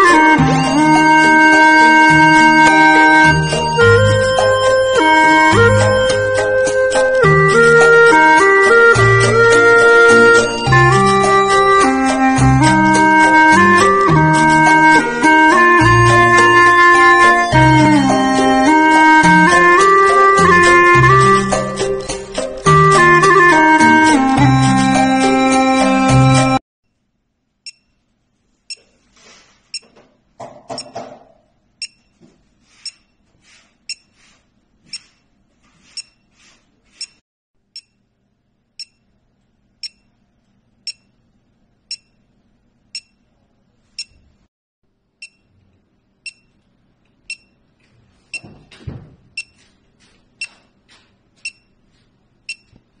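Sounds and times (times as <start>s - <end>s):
pulse oximeter beeping: 27.7s - 28.0s, 31.8s - 32.1s, 33.9s - 34.1s, 35.9s - 36.2s, 38.8s - 39.0s, 40.9s - 41.2s, 41.9s - 42.2s, 43.0s - 43.2s, 45.2s - 45.5s, 46.2s - 46.6s, 47.3s - 47.6s, 49.4s - 49.6s, 50.4s - 50.6s, 51.4s - 51.8s, 52.5s - 52.8s.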